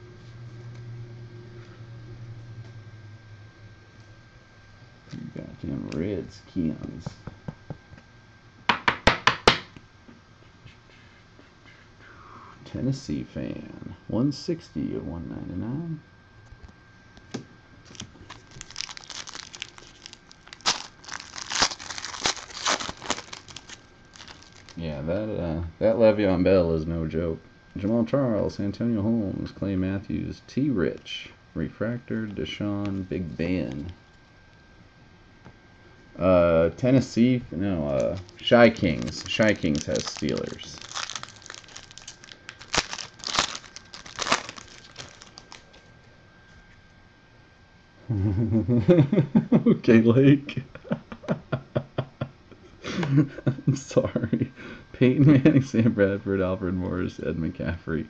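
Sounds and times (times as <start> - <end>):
plastic wrapper crinkling: 17.8 - 24.8, 37.9 - 45.9.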